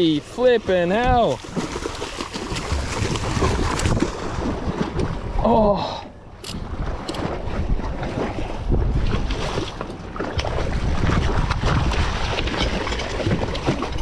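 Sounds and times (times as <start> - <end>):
water splashing against hull: 0.0 - 14.0
wind buffeting microphone: 0.8 - 5.5, 6.4 - 14.0
fish thrashing at surface: 1.4 - 5.1.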